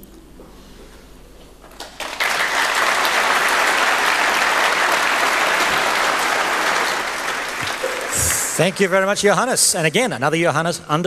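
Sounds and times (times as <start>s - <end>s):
large audience applauding: 1.8s - 9.3s.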